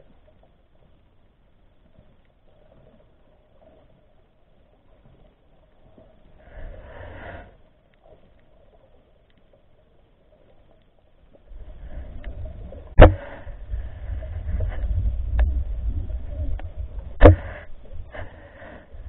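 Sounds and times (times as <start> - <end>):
underwater camera handling rumble: 12.1 - 18.1
sharp loud knock: 13.0 - 13.2.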